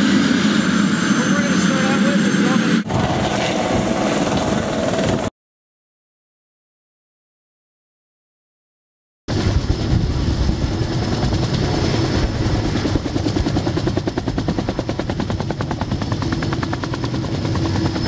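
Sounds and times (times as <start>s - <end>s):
helicopter rotor chop: 0.0s - 5.3s, 9.3s - 18.0s
helicopter turbine whine: 0.0s - 5.3s, 9.3s - 18.0s.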